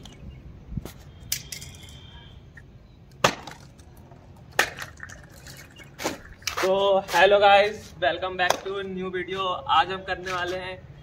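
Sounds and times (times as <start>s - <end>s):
small objects clattering on concrete: 1.2s - 2.2s, 3.3s - 7.1s.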